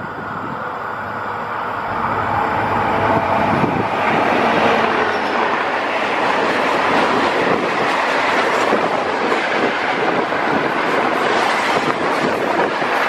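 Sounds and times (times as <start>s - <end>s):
diesel locomotive engine: 0.0s - 13.0s
train wagons rumbling on rails: 0.0s - 13.0s.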